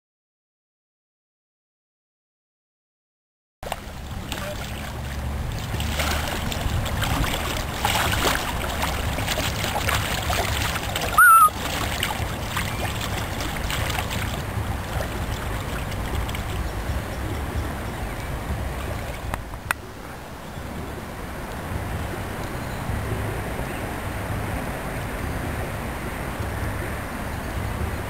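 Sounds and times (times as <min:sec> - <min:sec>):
paddle splashing in water: 0:03.6 - 0:20.2
loud high-pitched sound: 0:11.2 - 0:11.5.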